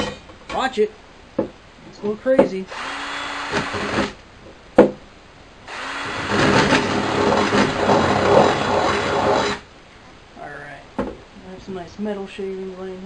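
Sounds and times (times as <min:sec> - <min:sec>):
drill grinding through metal: 0:02.7 - 0:04.2, 0:05.7 - 0:09.7.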